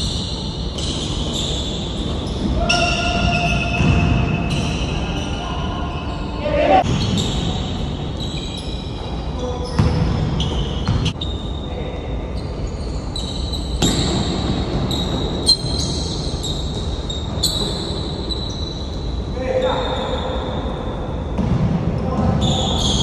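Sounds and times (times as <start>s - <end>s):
shoe squeaks: 0.0s - 21.3s, 22.4s - 23.0s
basketball bouncing on court: 2.0s - 5.2s, 9.6s - 11.2s, 21.3s - 23.0s.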